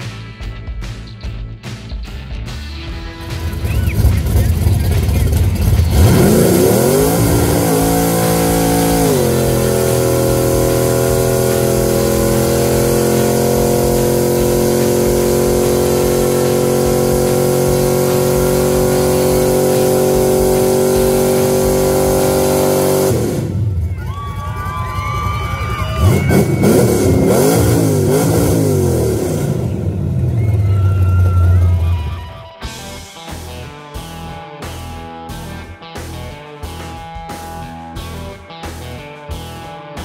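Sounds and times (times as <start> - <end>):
car engine revving hard: 3.3 - 23.9, 26.0 - 30.7.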